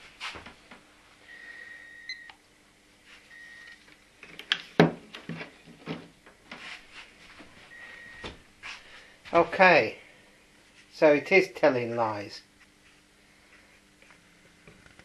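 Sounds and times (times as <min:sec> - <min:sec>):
clamp meter beeping: 0:01.9 - 0:02.4.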